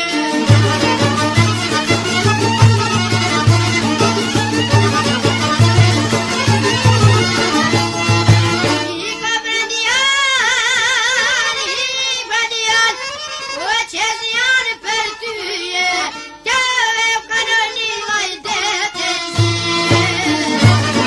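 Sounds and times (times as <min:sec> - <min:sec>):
light instrumental backing: 0:00.0 - 0:09.1, 0:19.4 - 0:21.0
person singing with vibrato: 0:08.7 - 0:21.0.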